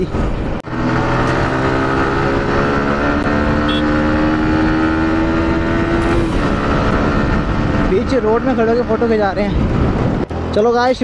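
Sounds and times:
motorcycle engine accelerating: 0:00.4 - 0:10.8
wind rush: 0:04.2 - 0:10.4.

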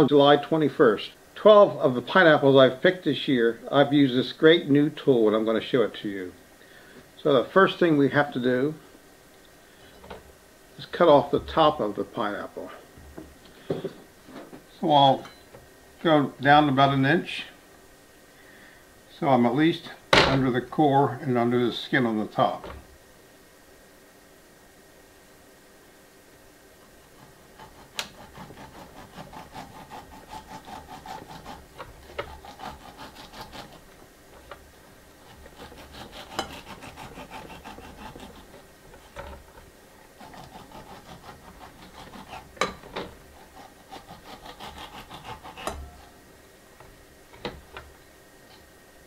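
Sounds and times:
knife sawing through pineapple: 0:27.0 - 0:34.0, 0:35.2 - 0:46.2.

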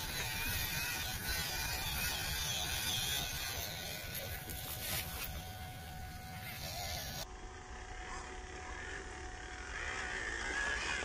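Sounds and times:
tyres on gravel: 0:00.0 - 0:07.2
small electric motor whine: 0:00.0 - 0:11.0.

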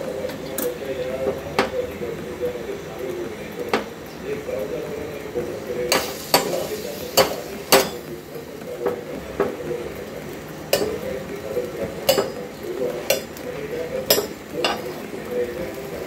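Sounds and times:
metal spatula clinking on burner grate: 0:10.7 - 0:11.0, 0:12.0 - 0:13.5, 0:14.1 - 0:15.0.

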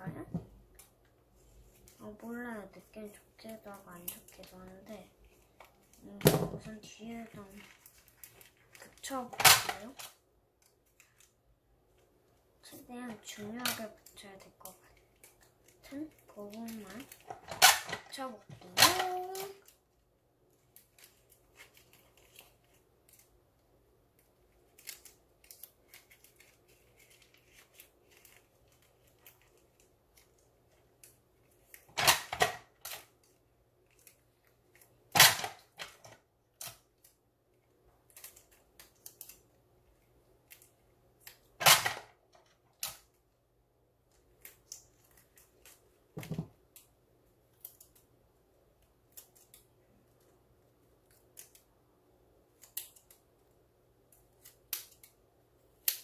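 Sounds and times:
paper crinkling: 0:06.9 - 0:09.2, 0:10.6 - 0:12.1, 0:20.5 - 0:23.4, 0:24.2 - 0:31.9.

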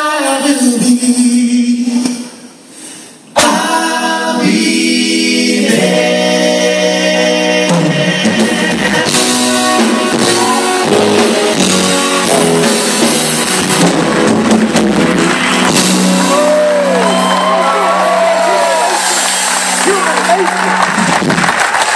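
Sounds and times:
male vocal group singing: 0:00.0 - 0:02.4, 0:03.3 - 0:11.7
drums: 0:00.0 - 0:21.9
piano: 0:03.3 - 0:21.9.

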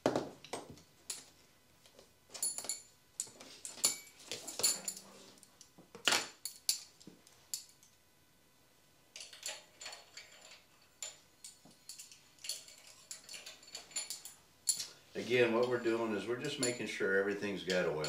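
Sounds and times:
metallic clinks and taps: 0:02.3 - 0:05.7, 0:09.2 - 0:15.0, 0:15.6 - 0:18.0.

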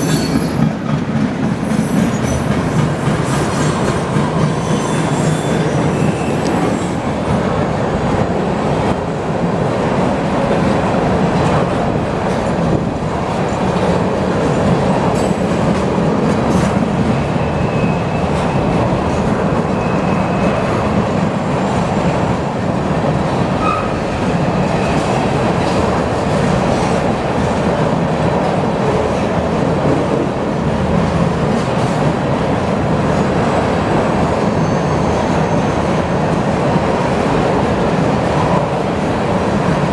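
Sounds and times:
train wheel squeals: 0:00.0 - 0:00.8, 0:01.6 - 0:07.0, 0:16.6 - 0:20.9, 0:23.6 - 0:25.2, 0:34.2 - 0:36.1
freight train wheels rumbling: 0:00.0 - 0:39.9.

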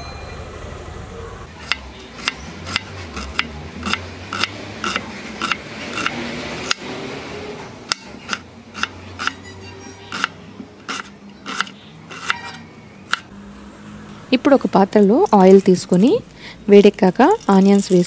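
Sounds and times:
knife chopping on cutting board: 0:01.6 - 0:06.8, 0:10.1 - 0:12.4.

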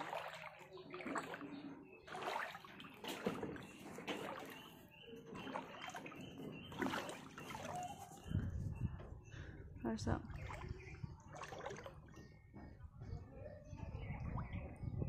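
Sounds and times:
feet wading through water: 0:00.0 - 0:08.3, 0:10.0 - 0:12.5.

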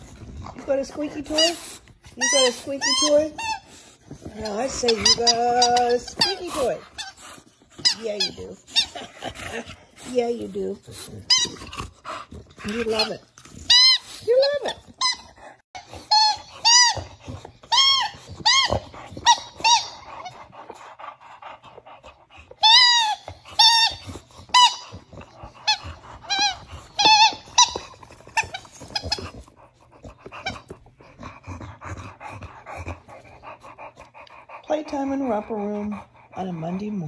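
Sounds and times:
rubber squeaky toy squeaking: 0:00.7 - 0:11.9, 0:12.6 - 0:20.5, 0:22.6 - 0:29.5.

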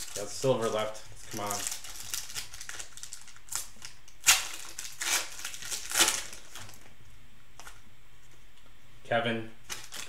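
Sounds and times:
cellophane wrapper tearing and crinkling: 0:00.0 - 0:06.9, 0:09.7 - 0:10.0.

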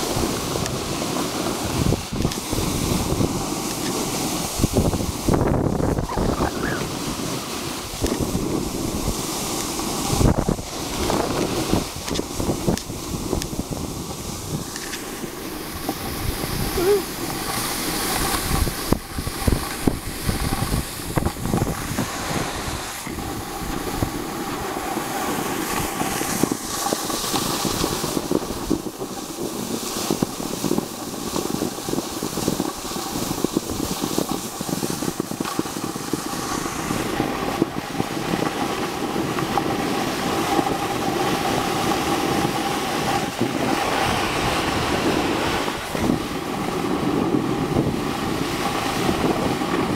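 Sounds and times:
snowboard scraping over snow: 0:00.0 - 0:49.9
wind buffeting microphone: 0:00.0 - 0:49.9.

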